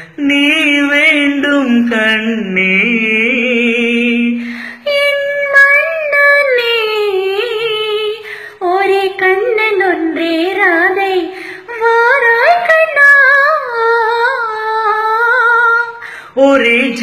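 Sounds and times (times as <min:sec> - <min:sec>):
woman singing: 0:00.0 - 0:17.0
singer's breaths: 0:04.4 - 0:04.9.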